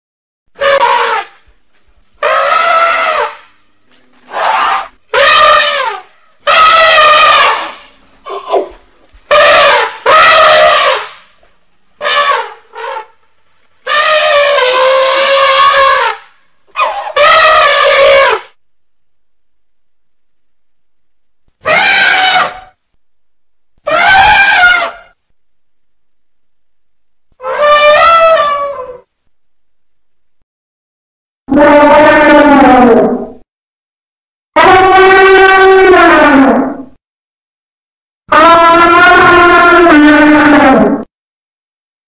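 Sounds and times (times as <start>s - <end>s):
elephant trumpeting: 0.6s - 1.4s, 2.2s - 3.5s, 4.2s - 11.2s, 12.0s - 13.2s, 13.8s - 18.6s, 21.6s - 22.7s, 23.8s - 25.2s, 27.4s - 29.0s, 34.6s - 36.8s, 38.3s - 41.0s.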